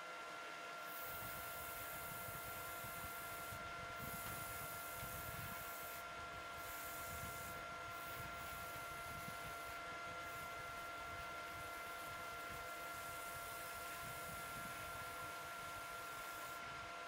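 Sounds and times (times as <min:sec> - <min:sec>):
sandpaper hissing on wood: 0:00.9 - 0:10.5.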